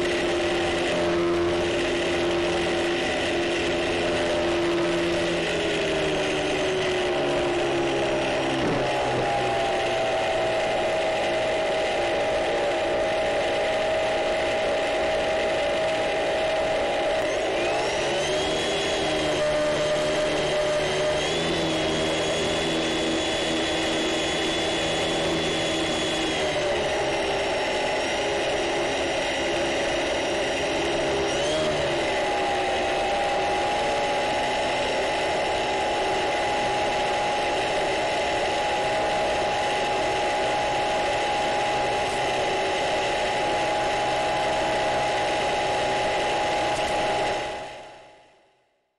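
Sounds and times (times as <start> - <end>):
electric motor and propeller whine: 0.0 - 48.9.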